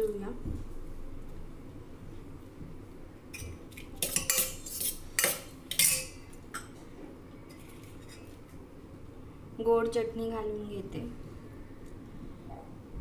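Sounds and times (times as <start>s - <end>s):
spoon clinking in steel bowl: 3.4s - 6.7s.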